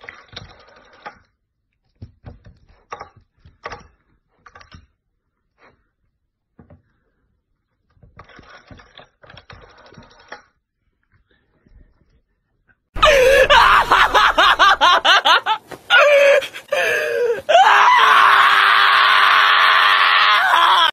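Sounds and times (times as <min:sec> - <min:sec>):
dog screaming: 0:13.0 - 0:20.9.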